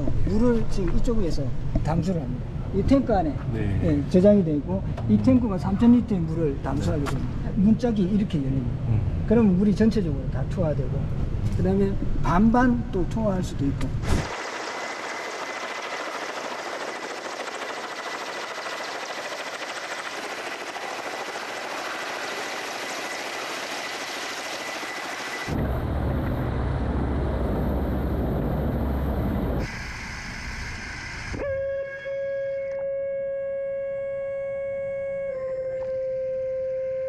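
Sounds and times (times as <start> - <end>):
helicopter rotor noise: 14.0 - 31.4
deep rumble: 25.5 - 29.7.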